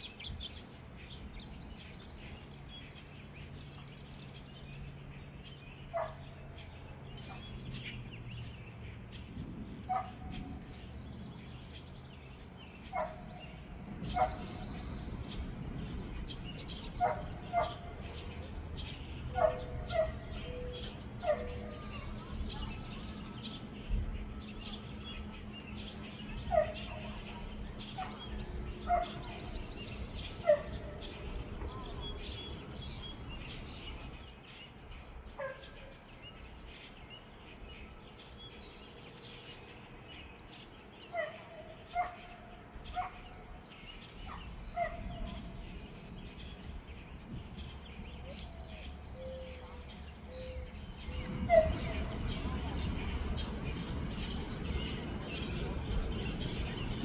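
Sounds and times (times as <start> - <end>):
small birds chirping: 0.0 - 57.0
dog barking: 5.9 - 6.3, 9.9 - 10.3, 12.9 - 13.4, 14.1 - 14.6, 17.0 - 17.9, 19.3 - 20.5, 21.2 - 21.9, 26.4 - 27.3, 28.0 - 29.4, 35.4 - 35.7, 41.2 - 42.3, 42.9 - 43.3, 44.3 - 45.3
steady low rumble: 6.7 - 35.3, 42.6 - 57.0.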